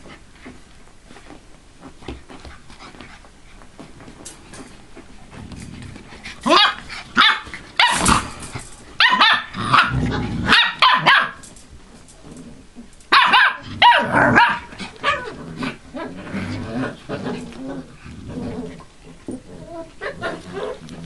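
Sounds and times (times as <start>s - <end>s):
puppies barking high-pitched: 6.4s - 8.2s, 9.0s - 11.5s, 13.1s - 15.3s.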